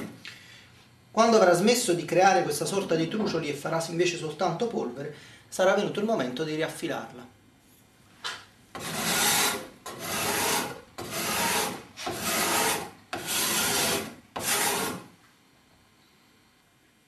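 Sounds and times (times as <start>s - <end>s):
card scraper scraping wood: 8.8s - 15.1s.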